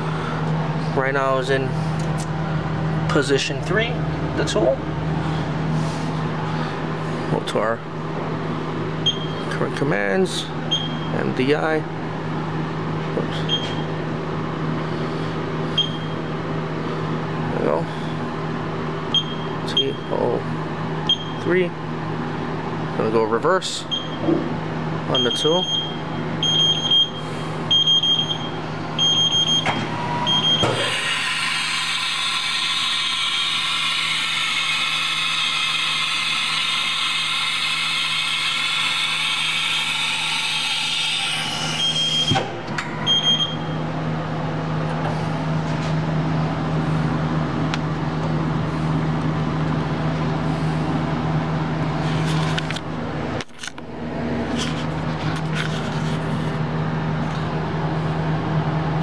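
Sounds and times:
machine hum: 0.0 - 59.0
mill spindle whine: 0.0 - 59.0
high electronic beep: 41.8 - 42.4, 43.0 - 43.8.

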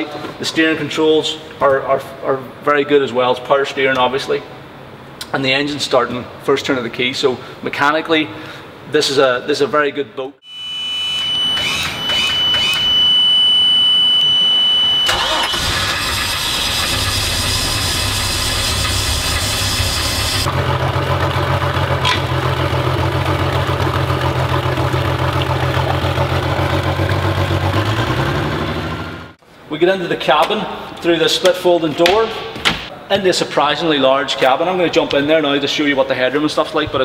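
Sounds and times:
high warning buzzer: 10.4 - 15.7, 17.0 - 20.5
boat engine starting and idling: 15.1 - 29.4.

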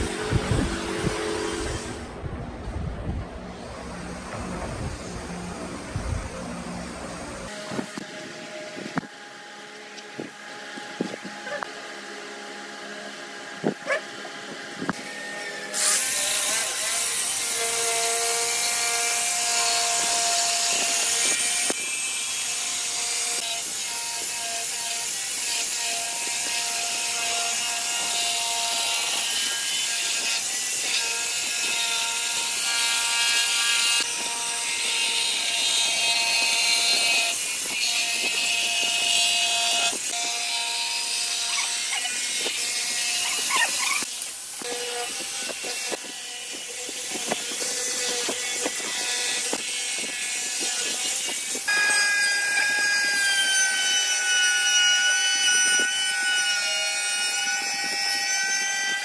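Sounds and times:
low hum: 0.0 - 7.5
jigsaw cutting wooden board: 7.5 - 59.0.

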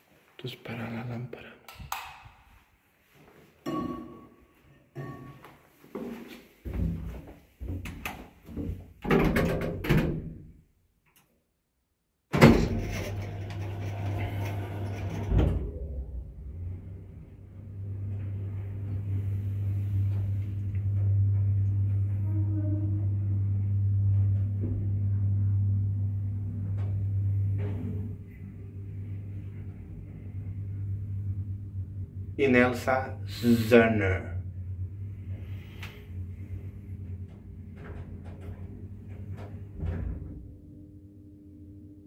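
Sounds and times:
lift doors sliding closed: 12.4 - 32.3, 35.2 - 40.6
lift car humming: 12.4 - 42.0.

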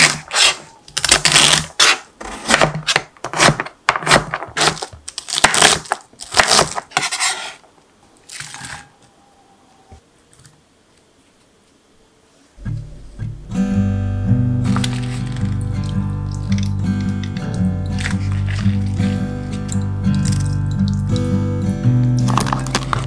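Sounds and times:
rustle of vegetables on board: 18.0 - 19.7.

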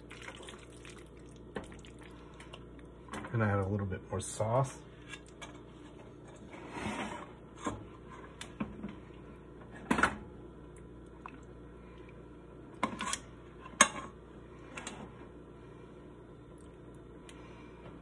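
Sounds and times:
utensil scrape: 5.1 - 8.3.

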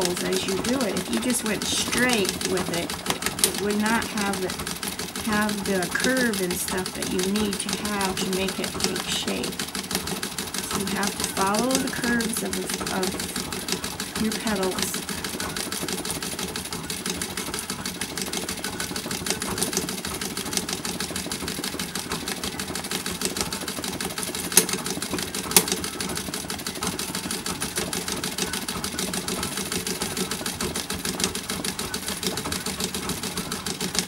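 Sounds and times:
treadle sewing machine running: 0.0 - 34.0.

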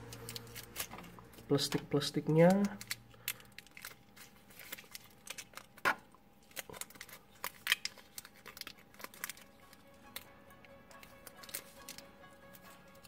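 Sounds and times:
plastic wrap crinkling: 0.0 - 13.0.

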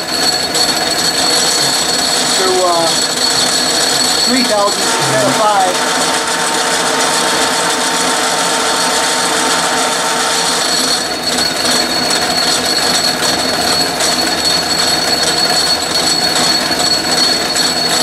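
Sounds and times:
high steady whine: 0.0 - 12.3
metal lathe running: 0.0 - 18.0.

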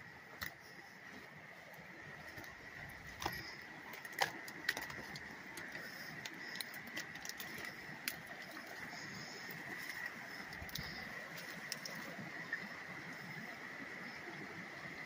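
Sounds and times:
faint steady high whine: 0.0 - 15.0
twigs and branches snapping underfoot: 2.2 - 12.2.

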